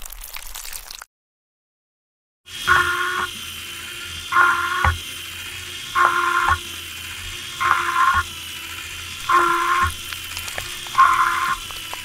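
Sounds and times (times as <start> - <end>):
small electric motor whirring: 2.5 - 12.0.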